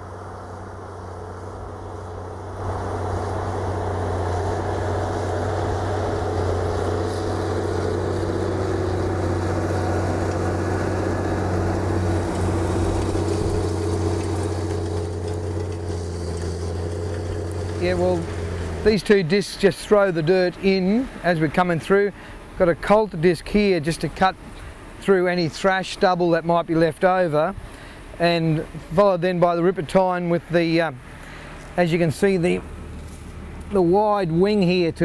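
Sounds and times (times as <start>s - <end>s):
tractor engine under load: 0.0s - 24.3s
tillage discs rushing through soil: 2.6s - 19.2s.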